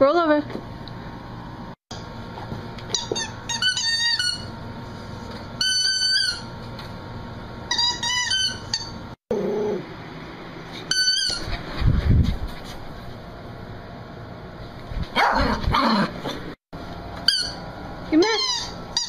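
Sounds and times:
squeaky dog toy squeaking: 2.9 - 4.6, 5.6 - 6.5, 7.7 - 9.0, 10.9 - 11.6, 17.3 - 17.6, 18.2 - 19.0.

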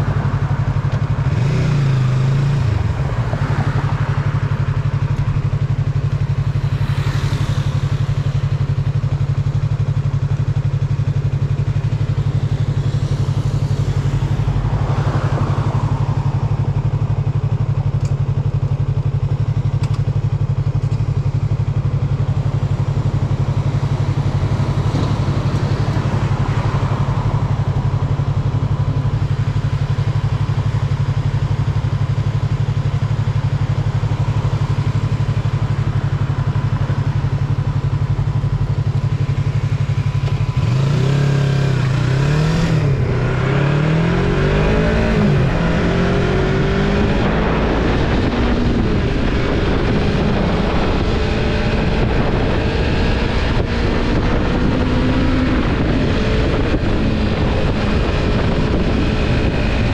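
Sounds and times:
passing vehicle noise: 0.0 - 9.8, 12.1 - 17.6, 23.4 - 29.4
motorcycle engine drone: 0.0 - 59.9.

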